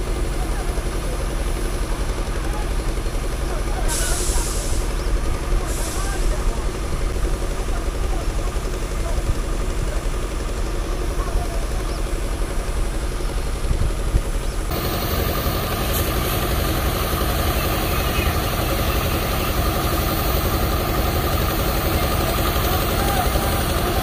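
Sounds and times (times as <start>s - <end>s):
truck diesel engine running: 0.0s - 24.0s
hiss: 3.8s - 7.2s, 14.7s - 24.0s.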